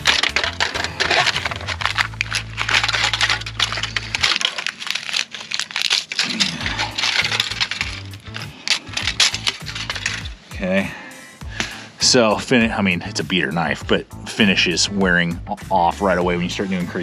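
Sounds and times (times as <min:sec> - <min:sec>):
aluminum tray crinkling and tearing: 0:00.0 - 0:10.4
knife blade sawing through foil: 0:00.0 - 0:10.4.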